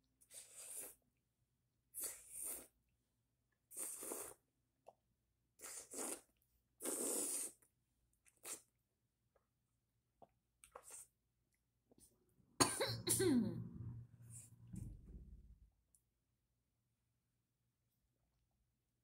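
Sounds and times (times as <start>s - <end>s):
sucking and chewing fruit: 1.9s - 9.6s, 10.2s - 11.6s.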